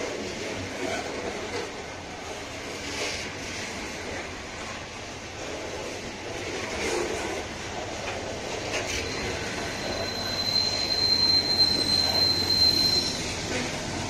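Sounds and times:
train wheels rolling on rails: 0:00.0 - 0:14.0
high wheel squeal: 0:08.6 - 0:14.0.

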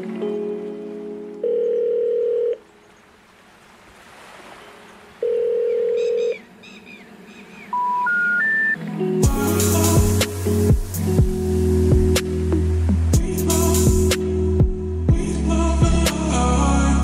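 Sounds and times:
steady telephone tones: 0:01.4 - 0:02.7, 0:05.2 - 0:06.4
rising beeps: 0:07.7 - 0:08.8.

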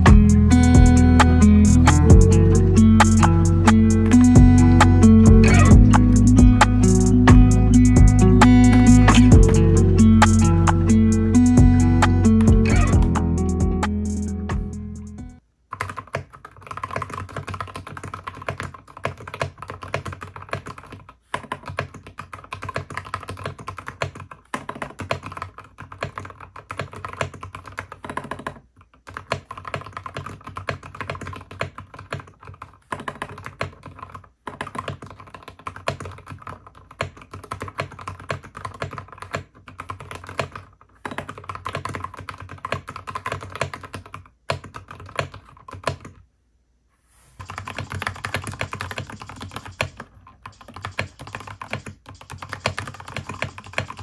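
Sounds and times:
mechanical keyboard typing: 0:00.0 - 0:14.8, 0:15.7 - 0:46.2, 0:47.4 - 0:54.0.

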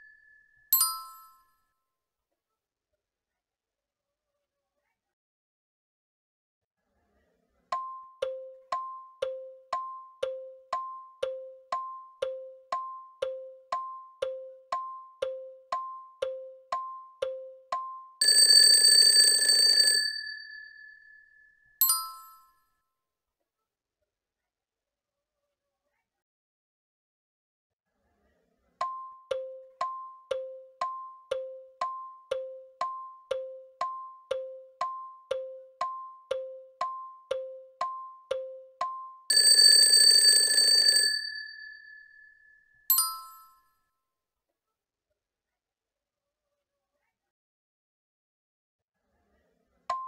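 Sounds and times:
alarm bell ringing: 0:00.0 - 0:01.4, 0:18.0 - 0:22.5, 0:39.1 - 0:43.6
tick-tock timer ticks: 0:07.7 - 0:18.7, 0:28.8 - 0:40.0.

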